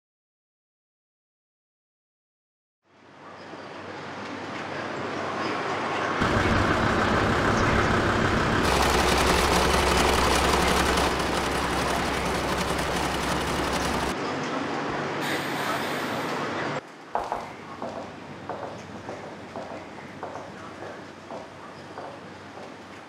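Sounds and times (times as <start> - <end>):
industrial sewing machines running: 6.2 - 14.2
low machine hum: 6.2 - 14.2.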